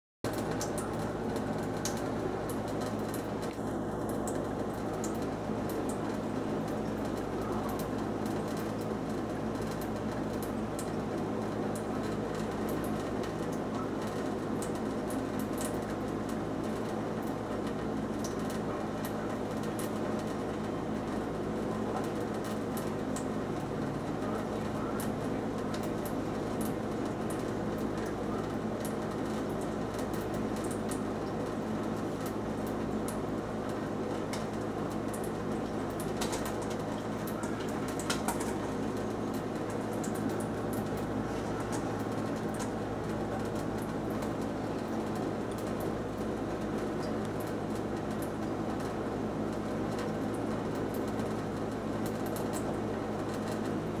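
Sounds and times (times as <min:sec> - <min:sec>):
steady low hum: 0:00.3 - 0:54.0.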